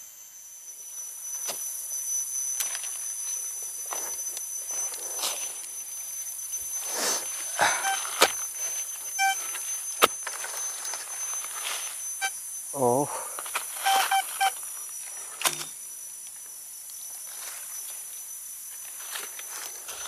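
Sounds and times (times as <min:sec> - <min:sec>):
high insect drone: 0:00.0 - 0:20.0
metal detector beeps: 0:01.9 - 0:14.8
hand spade digging soil: 0:06.9 - 0:10.6.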